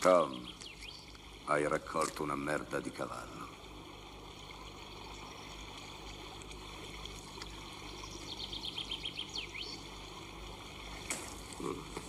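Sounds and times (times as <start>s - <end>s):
bird chirping: 0.0s - 1.2s, 7.7s - 10.0s
outdoor ambient noise: 0.0s - 12.0s.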